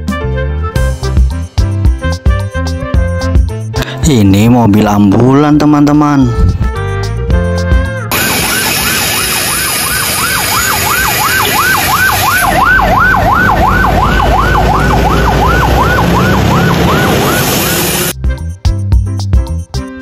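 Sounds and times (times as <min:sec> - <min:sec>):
ambulance siren yelping: 0:08.1 - 0:18.1
steady background rush: 0:08.1 - 0:18.1.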